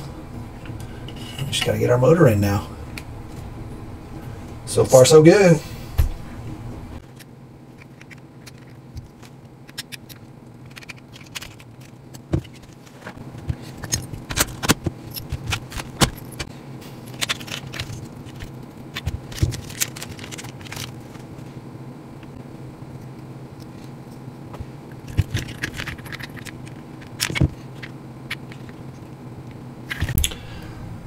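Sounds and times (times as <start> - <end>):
faint steady hum: 0.0 - 31.0
small metal parts clinking: 9.7 - 11.9, 25.0 - 28.7.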